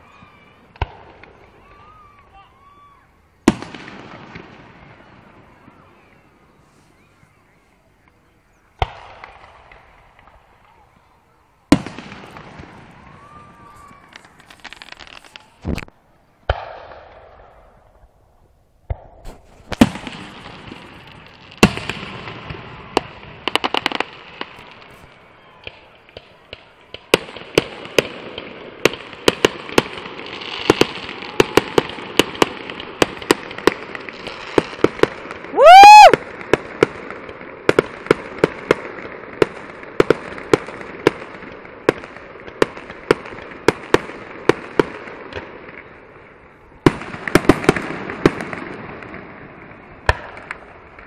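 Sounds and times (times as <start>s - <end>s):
rapid firework pops and crackles: 0.0s - 2.8s, 3.4s - 5.6s, 8.8s - 11.0s, 11.7s - 17.6s, 18.9s - 51.0s
fireworks bangs: 0.0s - 7.1s, 8.1s - 18.1s, 18.8s - 51.0s.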